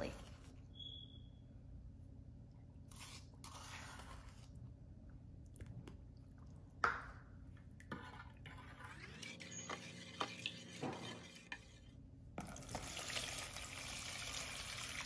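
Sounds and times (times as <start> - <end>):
spoon stirring in plastic bowl: 7.6 - 13.0.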